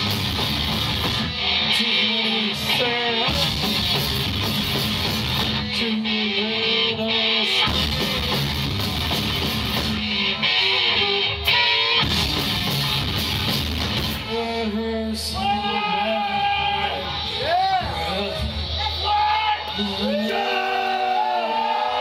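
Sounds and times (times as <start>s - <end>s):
heavy rock band playing: 0.0s - 22.0s.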